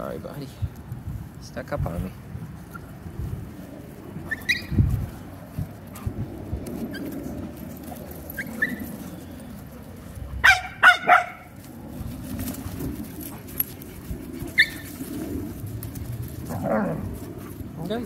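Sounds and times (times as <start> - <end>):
puppies yipping: 4.2 - 4.8, 6.8 - 7.4, 8.1 - 9.7, 10.3 - 11.5, 13.3 - 15.5
puppies barking: 8.3 - 9.4, 10.3 - 11.6, 14.5 - 15.1.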